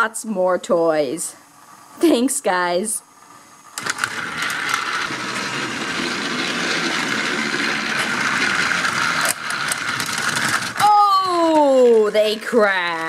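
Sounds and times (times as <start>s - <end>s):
toy motors and gears whirring: 3.6s - 13.0s
toy track clicks: 3.8s - 13.0s.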